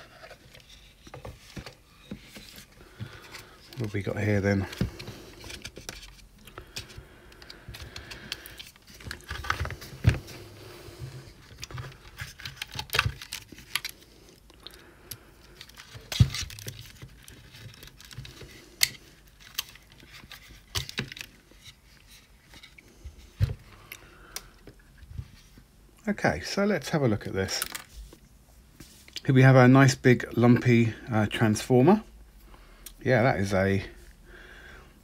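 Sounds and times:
wiring rustling: 0:00.0 - 0:14.8.

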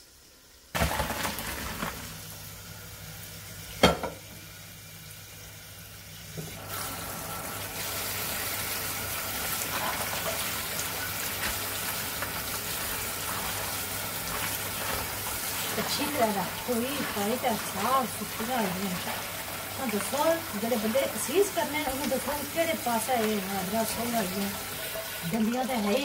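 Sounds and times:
kitchen tap running: 0:00.7 - 0:02.6, 0:03.6 - 0:26.0
metal pot clang: 0:03.8 - 0:04.2
water pouring into colander: 0:06.5 - 0:26.0.

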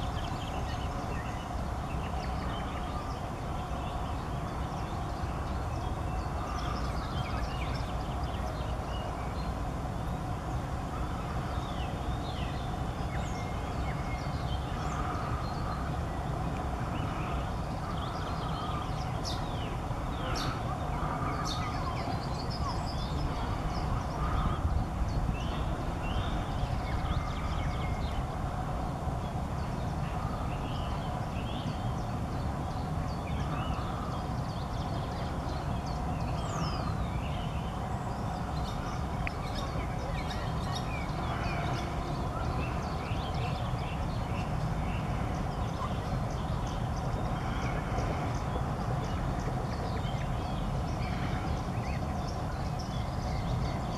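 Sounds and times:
low outdoor rumble: 0:00.0 - 0:53.9
songbird chirps: 0:00.0 - 0:53.9.

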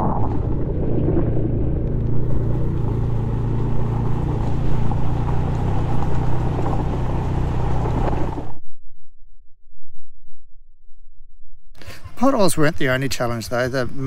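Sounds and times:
motorcycle engine running: 0:01.7 - 0:08.6.

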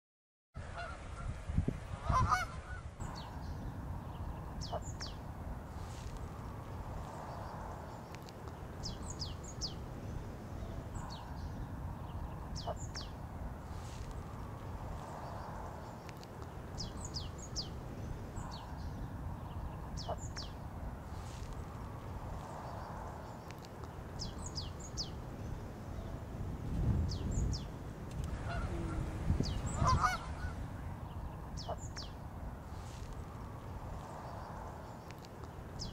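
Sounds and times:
geese honking: 0:00.7 - 0:01.3, 0:02.0 - 0:02.8, 0:28.3 - 0:30.7
songbird chirping: 0:02.2 - 0:35.9
steady low background: 0:02.9 - 0:35.9.

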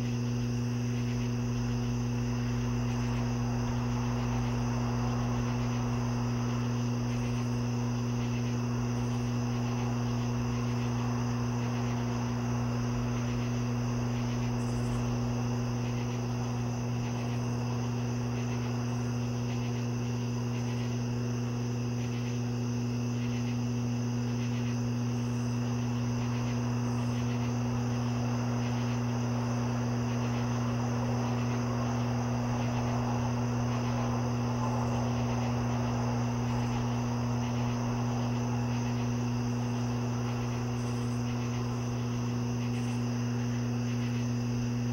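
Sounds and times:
crickets chirping: 0:00.0 - 0:44.9
low hum: 0:00.0 - 0:44.9.

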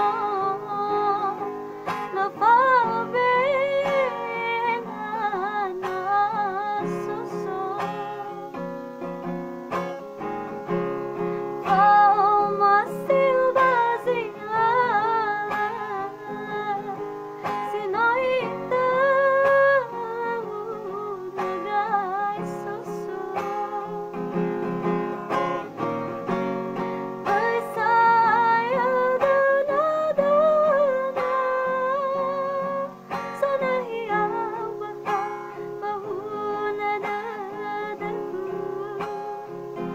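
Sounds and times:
woman singing with vibrato: 0:00.0 - 0:09.1, 0:11.6 - 0:25.6, 0:27.1 - 0:39.9
guitar accompaniment: 0:00.0 - 0:39.9.

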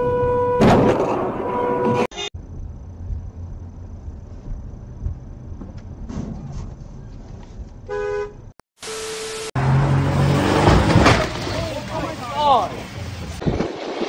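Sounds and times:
car horn toot: 0:00.0 - 0:00.8, 0:01.4 - 0:02.1, 0:07.9 - 0:09.5
car engine and road rumble: 0:00.0 - 0:08.6, 0:09.3 - 0:13.6.

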